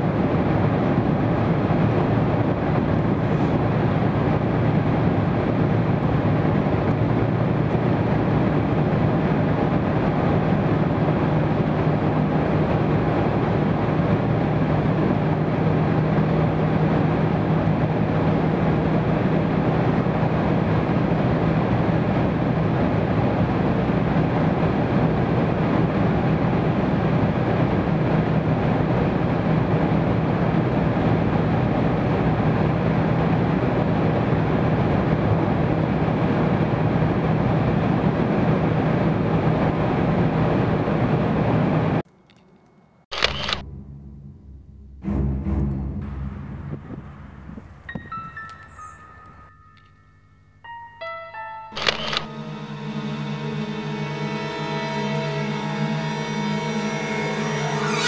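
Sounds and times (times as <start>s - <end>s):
car engine and road noise: 0.0s - 58.0s
brief sharp noise: 43.1s - 50.0s, 51.0s - 58.0s.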